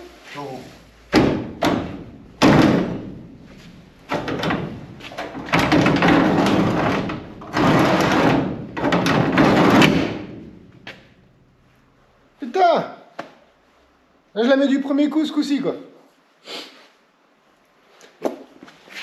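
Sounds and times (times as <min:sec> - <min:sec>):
sliding door rolling along track: 0:01.5 - 0:10.7.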